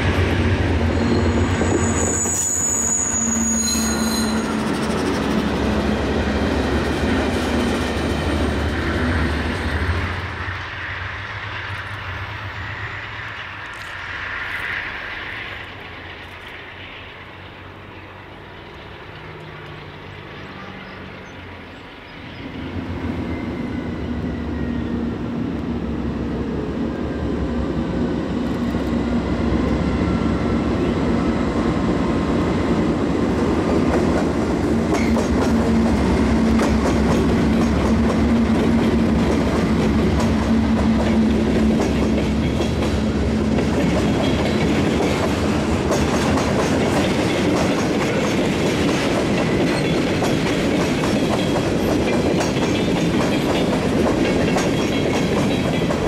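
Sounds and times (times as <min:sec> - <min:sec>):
diesel locomotive engines droning: 0:00.0 - 0:56.0
train wheels clicking over rail joints: 0:32.8 - 0:56.0.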